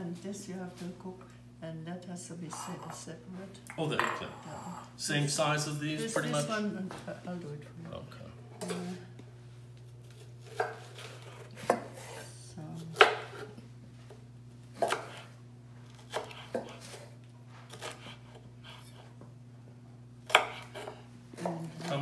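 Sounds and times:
knife chopping on wooden board: 10.4 - 12.2, 12.8 - 13.5, 14.8 - 15.3, 15.9 - 17.1, 20.2 - 22.0.

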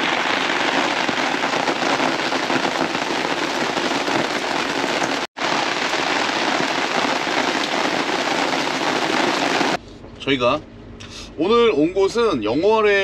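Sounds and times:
patter of falling water: 0.0 - 9.8.

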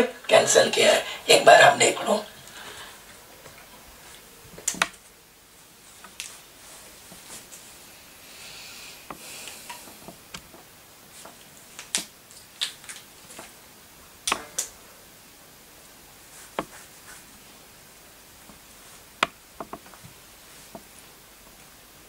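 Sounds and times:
sharp clicks and soft knocks: 4.6 - 5.1, 9.1 - 12.1, 19.2 - 20.1.

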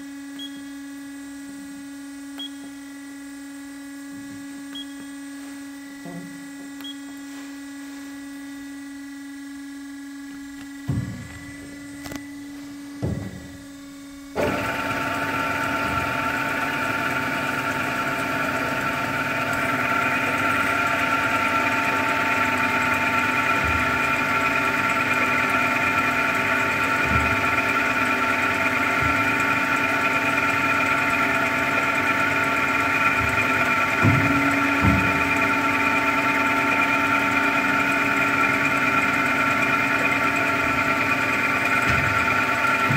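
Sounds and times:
machine hum: 0.0 - 42.9
low clunks: 10.8 - 12.1, 13.0 - 13.7
bandsaw running: 10.8 - 42.9.

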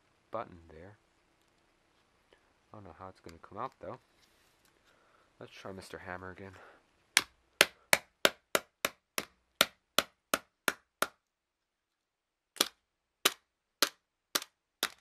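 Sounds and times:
hammer striking plastic case: 12.6 - 15.0.

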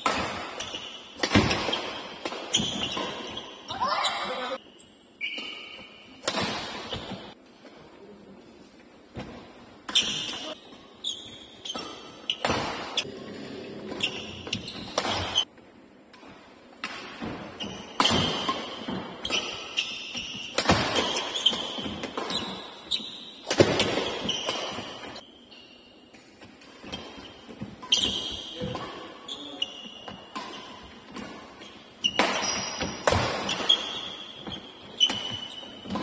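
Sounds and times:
racket striking shuttlecock: 0.0 - 3.4, 5.2 - 7.3, 11.6 - 13.0, 14.0 - 15.5, 16.1 - 22.6, 23.4 - 25.2, 32.0 - 36.0
shoe squeaks: 0.6 - 6.1, 9.9 - 13.1, 13.9 - 15.5, 17.5 - 26.2, 26.8 - 36.0.

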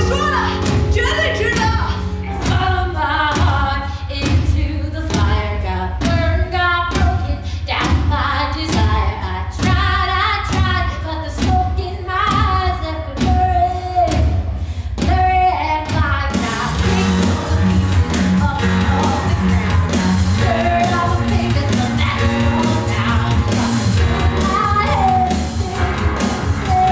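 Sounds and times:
drum beat: 0.0 - 3.6, 16.4 - 26.9
woman singing rock vocal: 0.0 - 26.9
electric guitar: 16.7 - 26.9.

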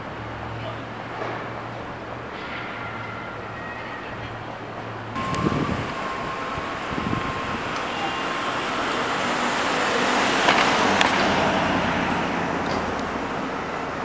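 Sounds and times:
vehicle passing: 2.9 - 14.0.

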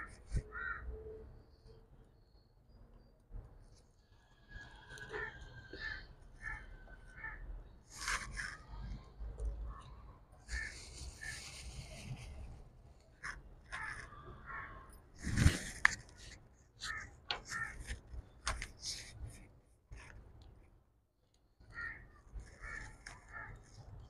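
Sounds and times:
harsh bird calls: 4.2 - 9.0, 9.7 - 12.2, 13.3 - 19.2.

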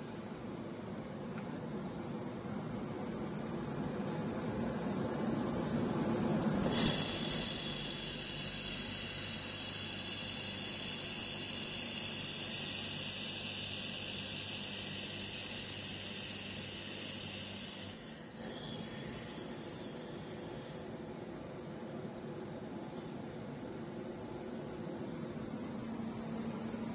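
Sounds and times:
laser welder hissing: 6.6 - 21.0.

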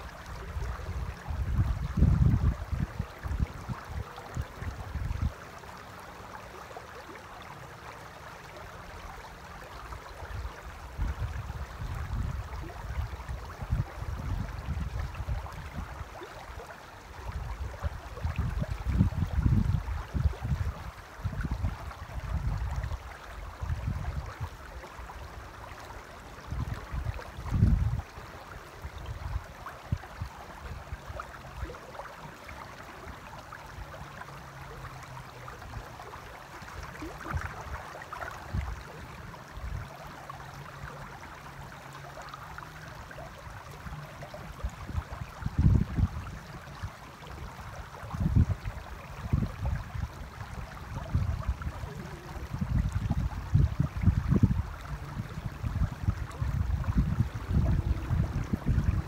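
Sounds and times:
river running over stones: 0.0 - 59.0
wind buffeting the microphone: 0.4 - 5.4, 10.3 - 16.2, 17.2 - 24.6, 26.4 - 28.2, 38.4 - 40.0, 44.2 - 59.0.

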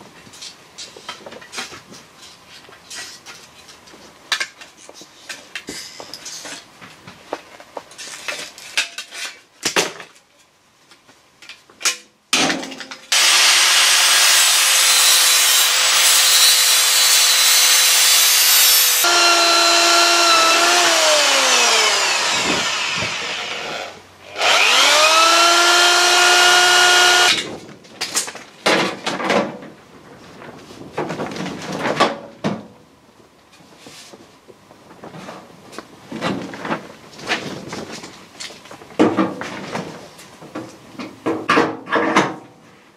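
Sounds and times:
power tool cutting steel: 13.1 - 27.4.

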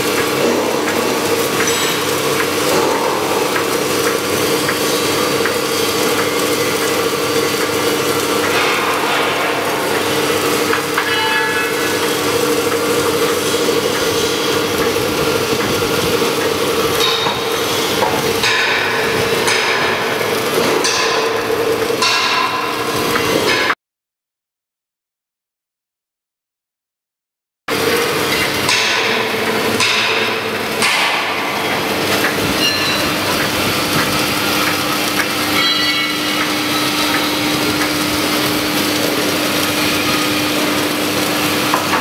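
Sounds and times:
welding crackling hiss: 0.0 - 23.4, 27.7 - 42.0
steady machine hum: 0.0 - 23.8, 27.7 - 42.0
sharp metallic knocks: 8.4 - 12.2, 17.0 - 23.8, 28.3 - 38.0.

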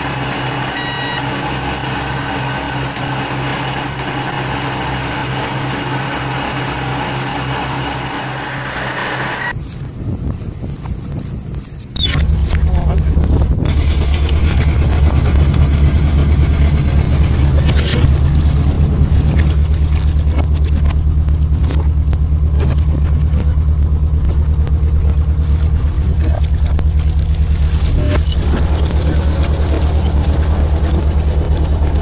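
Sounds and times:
boat engine droning: 0.0 - 32.0.

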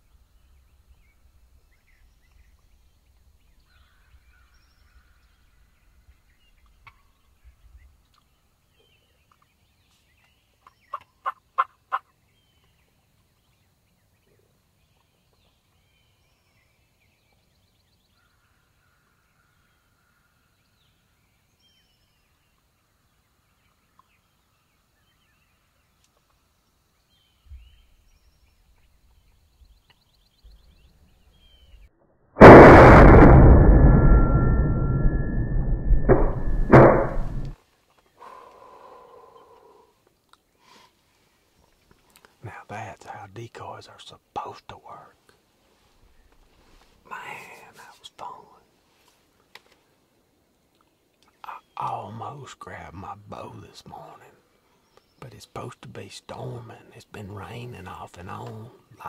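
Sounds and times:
turkey gobbling: 10.9 - 12.1
shotgun blast: 32.4 - 37.6.

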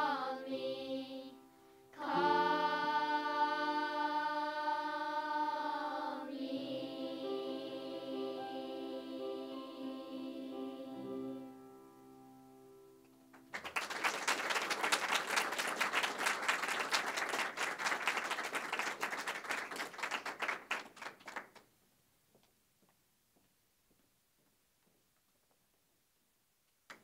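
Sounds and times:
children's choir singing: 0.0 - 11.5
musical accompaniment: 2.0 - 13.6
audience applauding: 13.3 - 21.7.

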